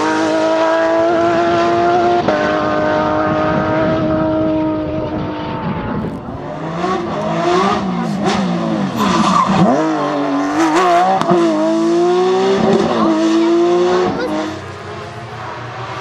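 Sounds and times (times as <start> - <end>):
rally car engine at high revs: 0.0 - 16.0
tyre squeal: 8.9 - 9.8.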